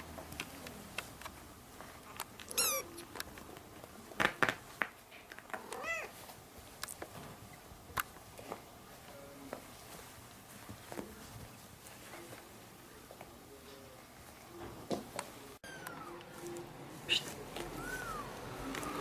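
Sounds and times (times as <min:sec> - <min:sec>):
kitten mewing: 0:02.5 - 0:03.1, 0:15.6 - 0:16.2, 0:17.0 - 0:19.0.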